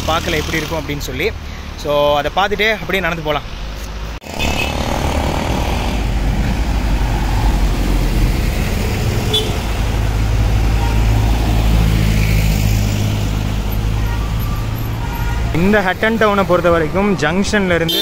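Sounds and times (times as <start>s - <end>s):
road traffic driving past: 0.0s - 17.9s.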